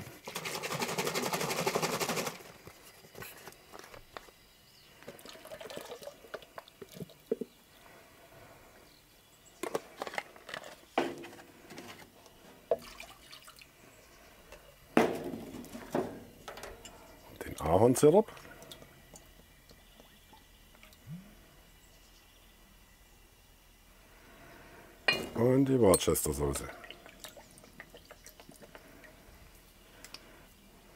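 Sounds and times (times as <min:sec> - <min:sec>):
liquid pouring into a pot: 0:05.0 - 0:07.2, 0:12.7 - 0:13.7
liquid dripping: 0:16.5 - 0:21.2, 0:25.9 - 0:29.2.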